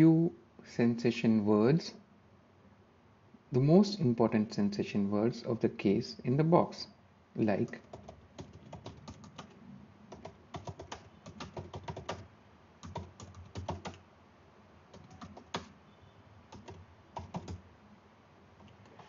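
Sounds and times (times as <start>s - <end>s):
keyboard typing: 7.6s - 14.0s, 14.9s - 15.8s, 16.5s - 17.6s.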